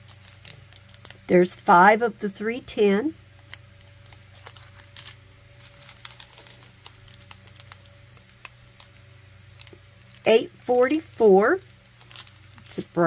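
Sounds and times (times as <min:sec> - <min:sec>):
plastic bags rattling: 0:00.0 - 0:01.3, 0:03.4 - 0:10.3, 0:11.4 - 0:13.0.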